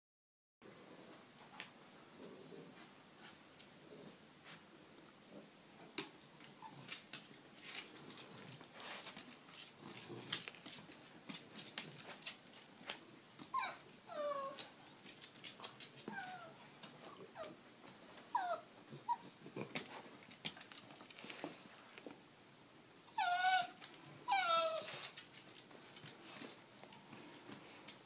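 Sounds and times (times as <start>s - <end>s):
dog whining: 13.5s - 14.8s, 15.9s - 17.6s, 18.3s - 19.7s, 23.1s - 25.2s.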